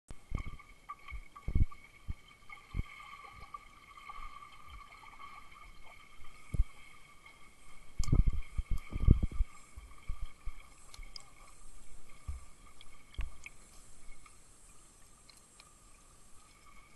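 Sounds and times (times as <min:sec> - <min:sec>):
dull underwater thuds: 0:00.1 - 0:02.9, 0:06.3 - 0:06.9, 0:08.0 - 0:11.2, 0:11.9 - 0:14.2.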